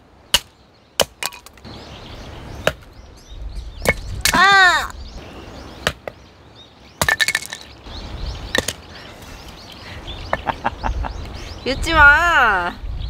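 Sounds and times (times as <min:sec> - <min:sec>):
axe striking firewood: 0:00.3 - 0:01.7, 0:02.6 - 0:02.9, 0:03.8 - 0:04.5, 0:05.8 - 0:06.2, 0:07.0 - 0:07.6.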